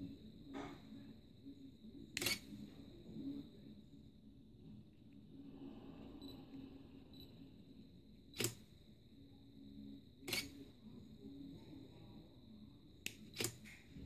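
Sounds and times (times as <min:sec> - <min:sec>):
quick camera clicks: 0:02.2 - 0:02.4.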